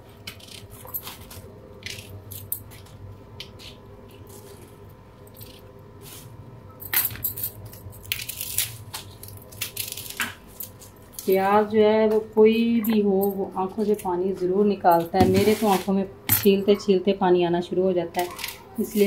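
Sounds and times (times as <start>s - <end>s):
onion skin crackling: 7.9s - 11.7s.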